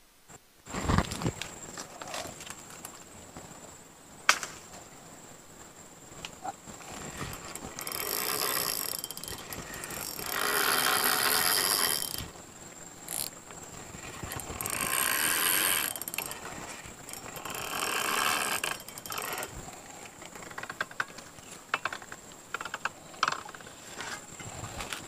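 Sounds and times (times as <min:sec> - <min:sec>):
fishing reel clicking: 0:07.3 - 0:12.3, 0:13.1 - 0:13.3, 0:14.3 - 0:19.5.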